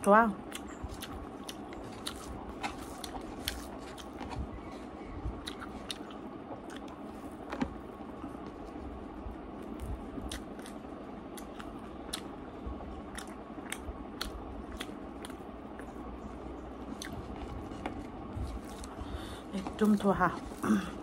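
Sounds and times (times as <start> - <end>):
steady background noise: 0.0 - 21.0
person chewing with mouth clicks: 0.4 - 4.7, 5.3 - 7.7, 9.6 - 12.4, 13.1 - 16.0, 16.8 - 19.0
fingers squishing food: 0.4 - 12.4, 13.0 - 19.0.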